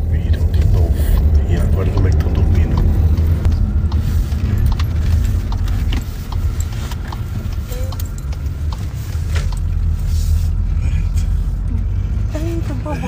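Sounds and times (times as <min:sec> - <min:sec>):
car rumble from inside cabin: 0:00.0 - 0:13.0.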